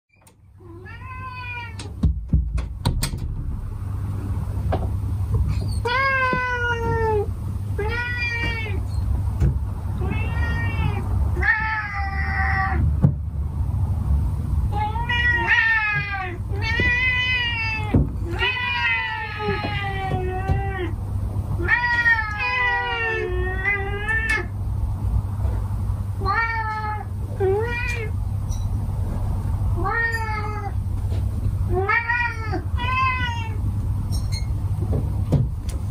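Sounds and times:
steady low hum: 0.1 - 35.9
cats meowing: 0.6 - 2.0, 5.5 - 9.2, 9.9 - 12.9, 14.7 - 24.6, 26.2 - 28.2, 29.8 - 30.8, 31.7 - 33.6.

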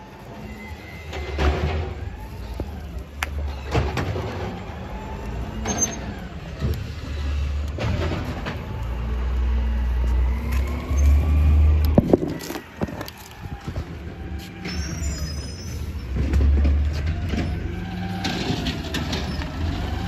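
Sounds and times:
wind rumble on microphone: 11.5 - 14.4
bicycle clicks and rattles: 11.8 - 13.8.

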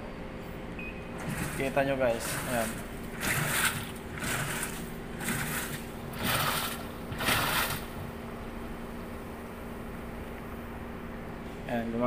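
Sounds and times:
washing machine motor hum: 0.7 - 11.4
washing machine water swishing: 1.1 - 8.4.

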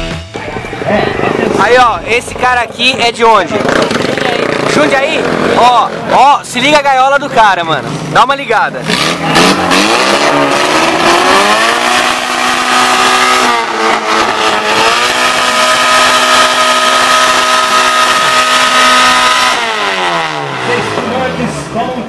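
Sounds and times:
buggy engine revving: 0.0 - 22.0.

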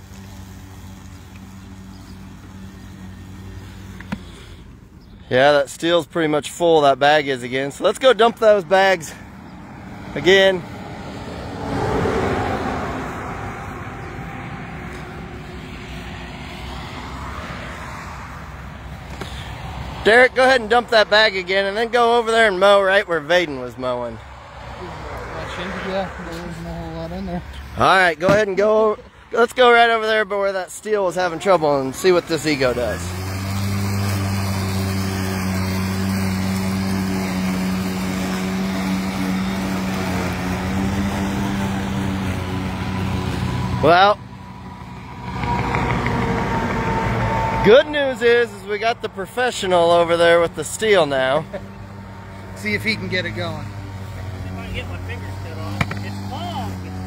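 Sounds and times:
electric lawn mower humming: 0.0 - 5.2, 8.0 - 25.7, 29.6 - 57.0
traffic noise: 0.0 - 57.0
vehicle passing: 0.0 - 57.0.

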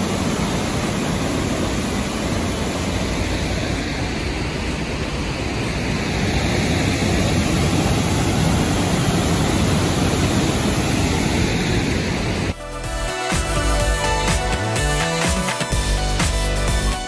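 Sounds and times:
waterfall and creek rushing: 0.0 - 16.8
music: 12.6 - 17.0.

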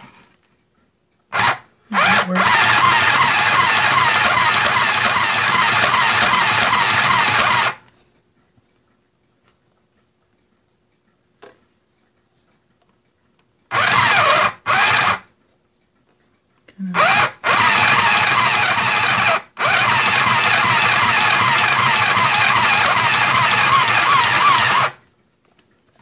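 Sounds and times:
sewing machine motor whirring: 1.3 - 7.8, 13.7 - 15.2, 16.9 - 25.0.

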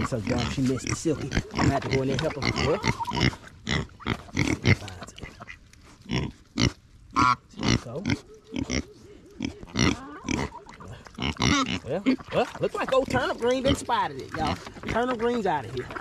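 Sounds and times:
pigs grunting: 0.0 - 16.0
pig high-pitched call: 2.4 - 4.6, 6.1 - 12.3.

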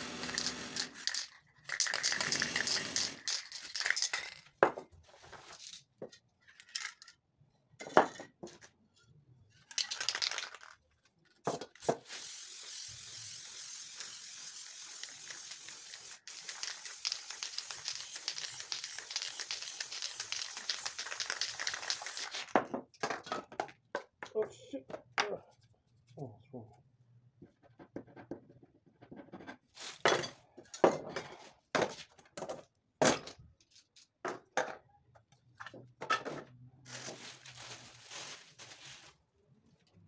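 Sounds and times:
spray paint can hissing: 0.0 - 4.1, 11.8 - 22.5.

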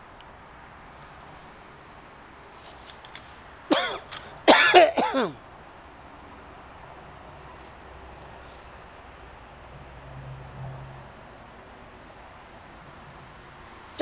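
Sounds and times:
person coughing: 3.7 - 5.4.

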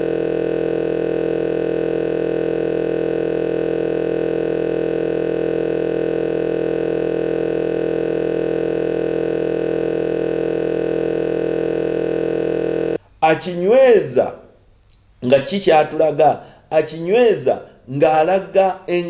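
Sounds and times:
loud steady electronic hum: 0.0 - 19.0.

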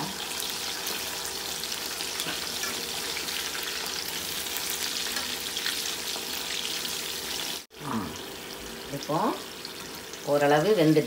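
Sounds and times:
eggplants sizzling in hot oil: 0.0 - 11.0
metal spoon turning food in pan: 2.1 - 6.5.

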